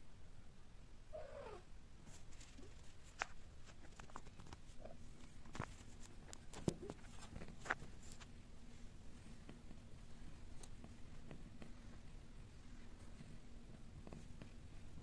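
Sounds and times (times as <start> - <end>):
faint clicks and taps: 2.1 - 15.0.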